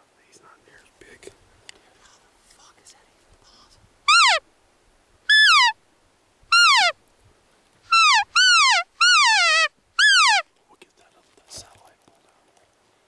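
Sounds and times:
elk mewing calls: 4.1s - 4.4s, 5.3s - 5.8s, 6.5s - 7.0s, 7.9s - 10.5s.

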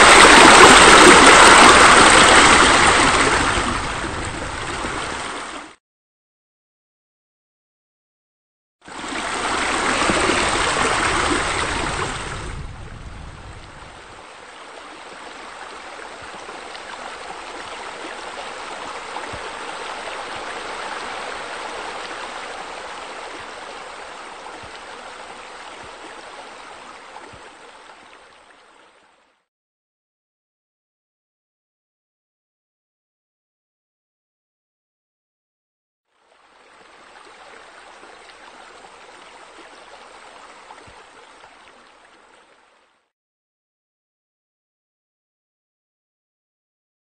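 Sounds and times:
waterfall rushing and splashing: 0.0s - 5.7s, 9.0s - 12.8s, 13.6s - 28.0s.

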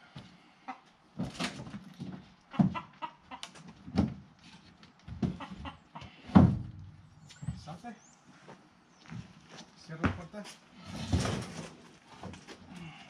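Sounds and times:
chicken clucking: 2.5s - 3.6s, 5.2s - 6.2s
wooden hutch knocking and bumping: 3.8s - 4.3s.

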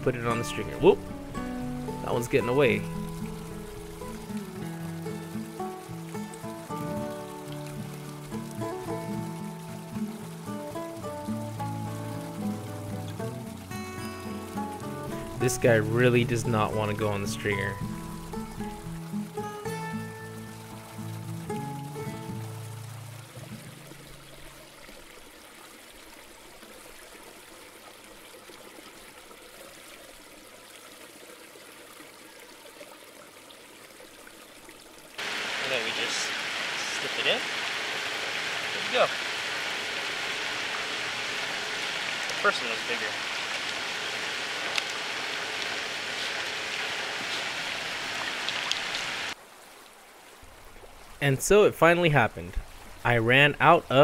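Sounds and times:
background music: 0.0s - 24.1s
trickling water: 0.0s - 54.0s
water hissing: 35.2s - 49.4s.

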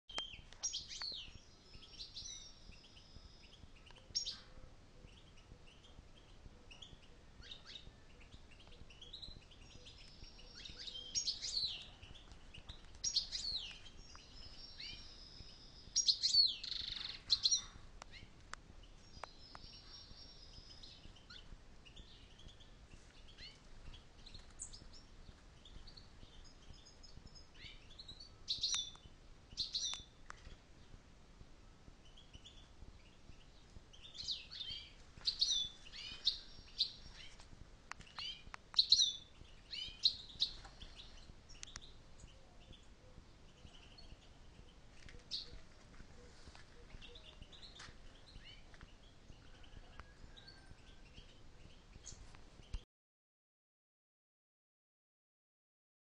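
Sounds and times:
finches chirping and twittering: 0.1s - 31.0s, 31.7s - 52.8s.

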